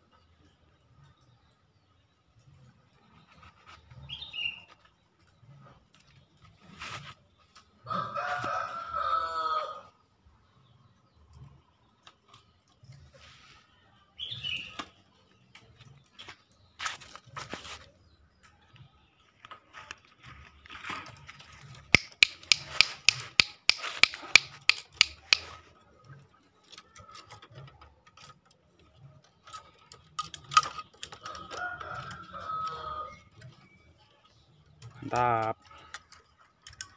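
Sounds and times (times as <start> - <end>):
rooster crowing hoarsely: 7.9 - 9.9
sharp clattering clicks: 21.9 - 25.6.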